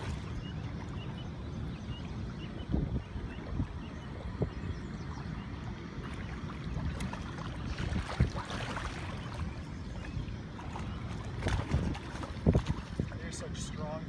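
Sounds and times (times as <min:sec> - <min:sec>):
water splashing: 0:00.0 - 0:01.6, 0:05.3 - 0:13.9
wind buffeting microphone: 0:00.0 - 0:14.0.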